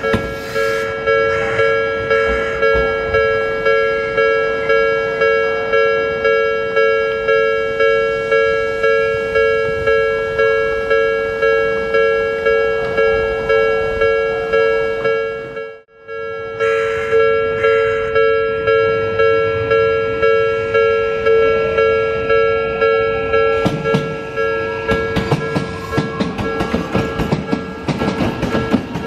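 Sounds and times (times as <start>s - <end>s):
level-crossing warning bell: 0.0s - 29.0s.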